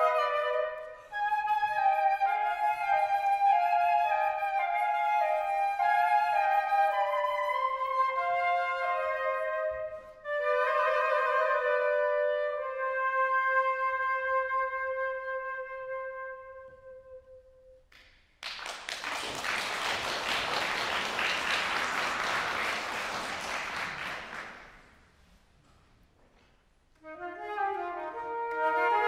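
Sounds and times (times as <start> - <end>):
two flutes playing: 0.0 - 17.8, 27.0 - 29.0
audience applauding: 18.0 - 25.0.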